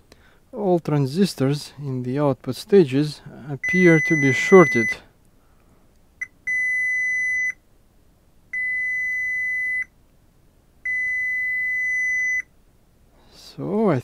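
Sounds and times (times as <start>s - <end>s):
multimeter continuity beeps: 3.6s - 5.0s, 6.2s - 7.6s, 8.5s - 9.9s, 10.8s - 12.5s.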